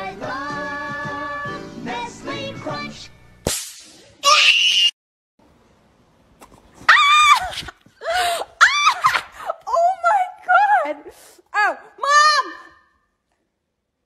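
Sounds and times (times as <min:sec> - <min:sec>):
high-pitched screams: 0:04.2 - 0:05.0.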